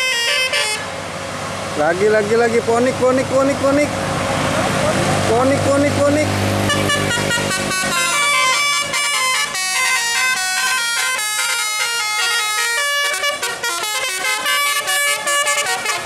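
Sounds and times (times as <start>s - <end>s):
musical bus air horn melody: 0.0s - 1.0s, 6.6s - 16.0s.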